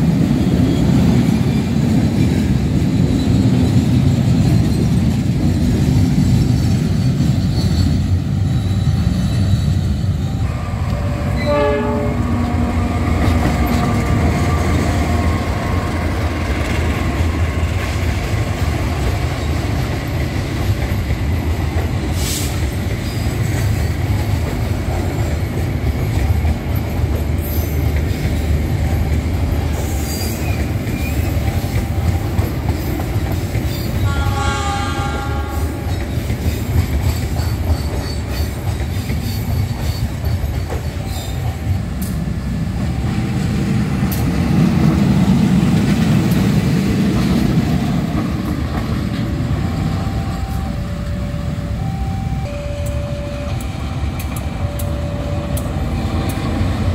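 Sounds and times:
diesel locomotive rumble: 0:00.0 - 0:56.9
train wheels rumbling and clacking: 0:00.0 - 0:56.9
level-crossing alarm: 0:49.6 - 0:56.9.

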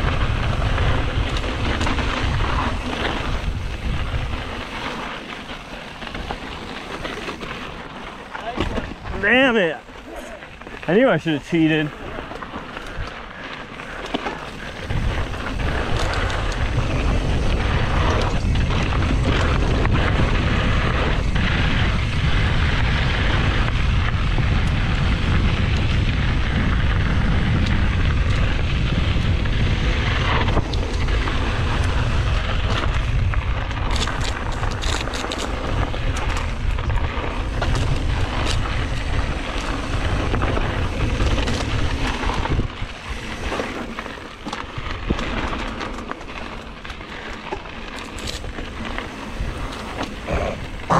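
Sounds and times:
bike clicks and knocks: 0:00.0 - 0:50.9
wind buffeting microphone: 0:00.0 - 0:50.9
tyres hissing on dirt: 0:48.0 - 0:50.9.

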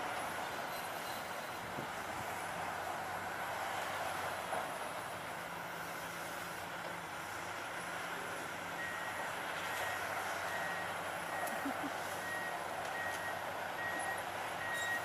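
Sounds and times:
excavator diesel engine running: 0:00.0 - 0:15.0
backup alarm beeping: 0:09.8 - 0:15.0.

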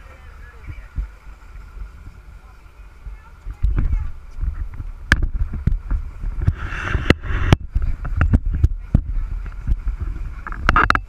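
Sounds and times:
boat engine rumble: 0:00.0 - 0:11.0
wind buffeting microphone: 0:00.0 - 0:11.0.

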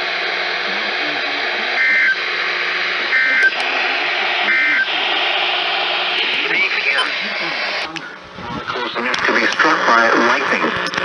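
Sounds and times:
radio static hiss: 0:00.0 - 0:11.0
buzzy data bursts: 0:01.0 - 0:07.9.

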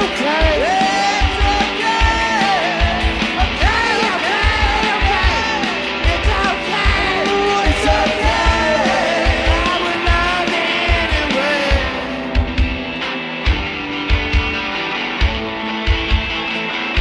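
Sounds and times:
person singing: 0:00.0 - 0:12.6
garage rock band: 0:00.0 - 0:17.0.

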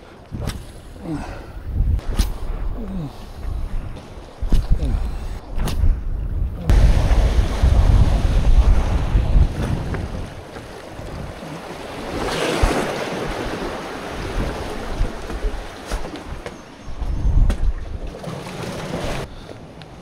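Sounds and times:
wind buffeting microphone: 0:00.0 - 0:20.0
waves washing against rocks: 0:06.7 - 0:16.5, 0:18.0 - 0:19.3.

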